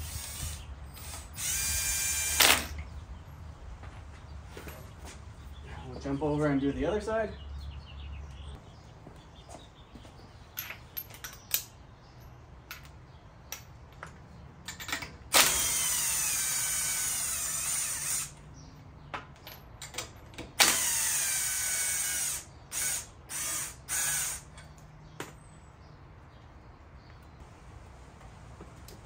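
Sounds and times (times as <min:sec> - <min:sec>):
power tool whining: 0:00.0 - 0:02.8, 0:15.3 - 0:18.4, 0:20.6 - 0:24.5.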